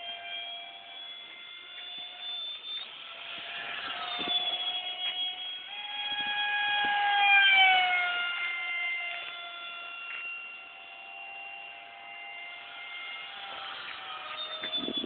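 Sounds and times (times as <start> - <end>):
model jet engine whining: 0.0 - 15.0.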